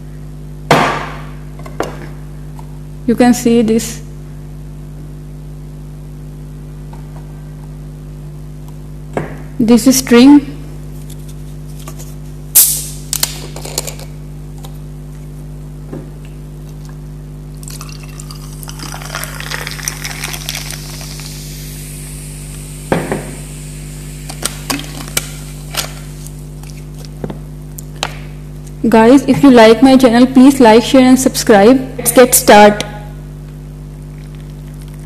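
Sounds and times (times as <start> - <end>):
bottle cap gas hiss: 12.5 - 14.0, 19.3 - 25.4
drink pouring and fizzing: 17.5 - 21.9.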